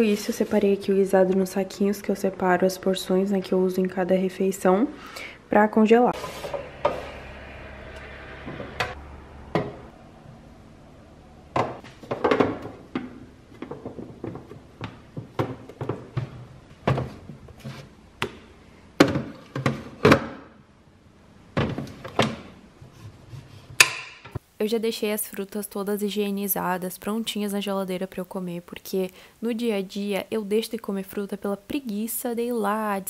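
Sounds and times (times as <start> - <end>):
items thunking on kitchen counter: 11.6 - 17.3.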